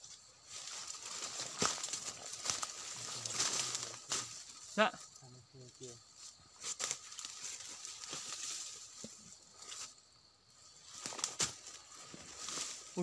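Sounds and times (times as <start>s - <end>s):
footsteps crunching through leaves: 0.3s - 4.6s, 6.1s - 10.0s, 10.8s - 13.0s
sharp twig cracks: 1.4s - 4.4s, 10.9s - 11.8s.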